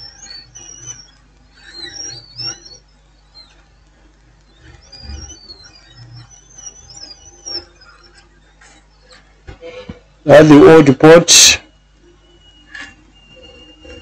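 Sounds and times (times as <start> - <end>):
small birds chirping: 0.0 - 9.4.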